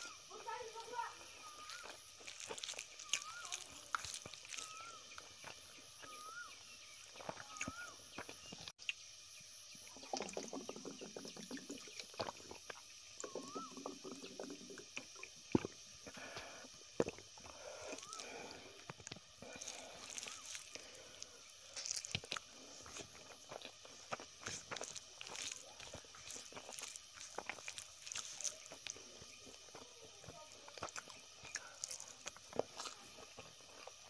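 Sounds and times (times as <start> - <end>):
bird chirping: 1.3 - 14.6
fingers mixing wet rice: 1.4 - 8.4, 17.0 - 34.0
chewing: 1.4 - 8.7, 10.8 - 34.0.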